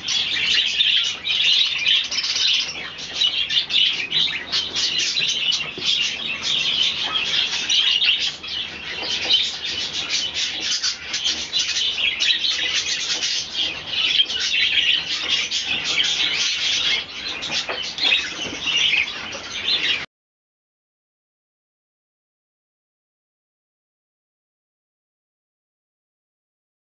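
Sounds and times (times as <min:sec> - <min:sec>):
budgerigars chattering and chirping: 0:00.0 - 0:20.0.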